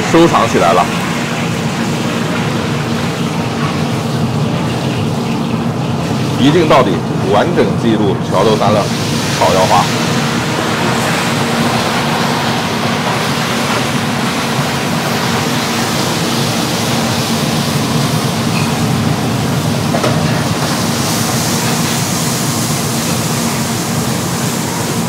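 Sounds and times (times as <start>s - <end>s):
wok burner roaring: 0.0s - 25.0s
meat sizzling in a wok: 8.6s - 25.0s.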